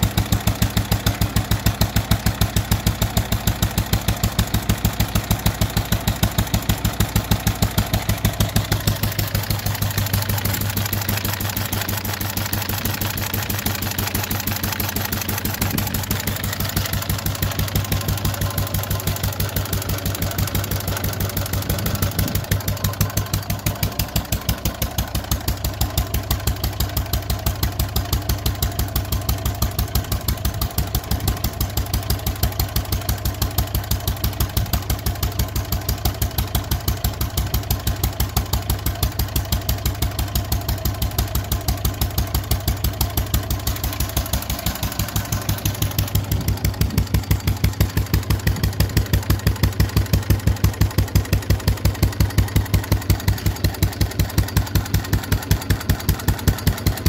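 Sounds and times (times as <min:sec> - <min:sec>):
stationary petrol engine running: 0:00.0 - 0:57.0.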